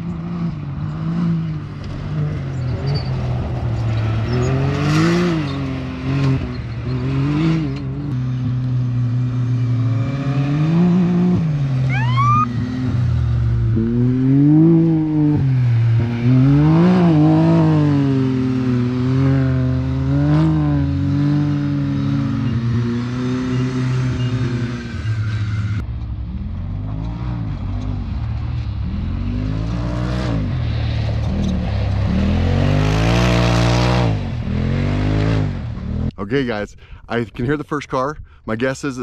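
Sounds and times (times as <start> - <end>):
race vehicle engine revving: 0.0 - 25.8.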